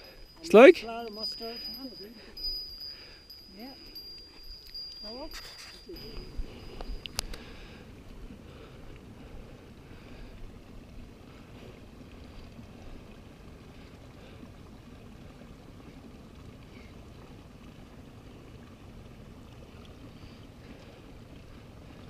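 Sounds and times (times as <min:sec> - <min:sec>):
bike rolling on gravel: 0:05.9 - 0:16.9.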